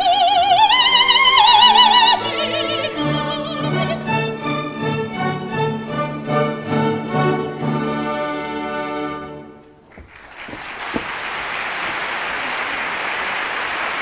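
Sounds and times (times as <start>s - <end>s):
audience applause: 9.9s - 14.0s.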